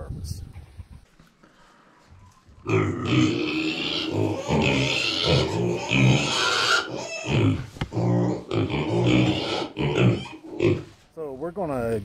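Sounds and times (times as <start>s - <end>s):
piglets grunting: 2.6s - 10.9s.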